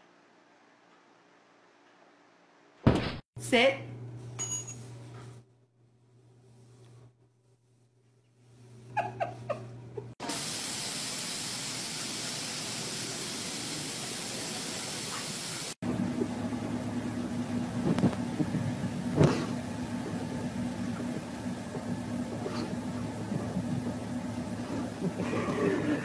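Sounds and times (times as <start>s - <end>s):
car running low hum: 15.8s - 26.0s.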